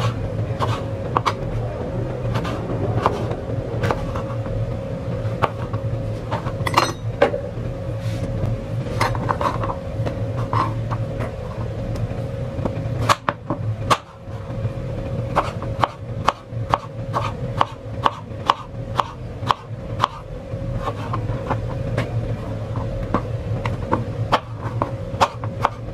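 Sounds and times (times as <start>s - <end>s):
steady low hum: 0.0s - 25.9s
bright clink: 6.7s - 7.2s.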